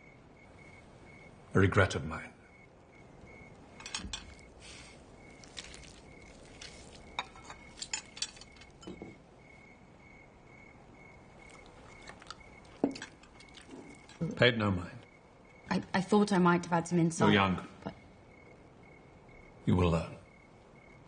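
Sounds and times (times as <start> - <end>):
cricket chirping: 0.0 - 21.0
cutlery and dishes clinking: 3.8 - 4.4, 5.4 - 9.2, 11.6 - 14.2.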